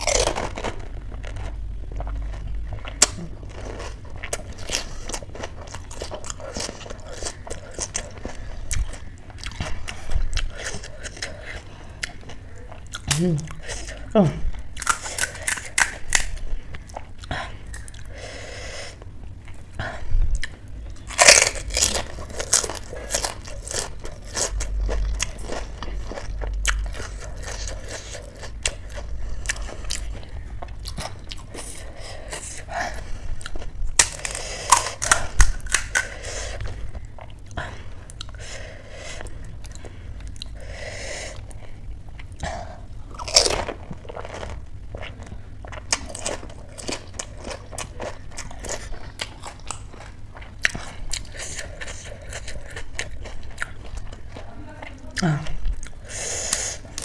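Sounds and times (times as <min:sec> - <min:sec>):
crunching crisp snack: 0:00.0 - 0:09.0, 0:21.1 - 0:30.2, 0:33.5 - 0:36.6, 0:43.1 - 0:54.2.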